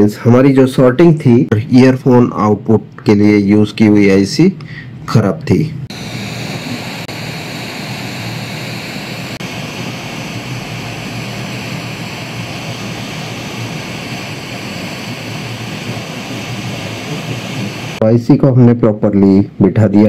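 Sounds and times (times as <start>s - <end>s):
hot air station hissing: 5.9s - 18.0s.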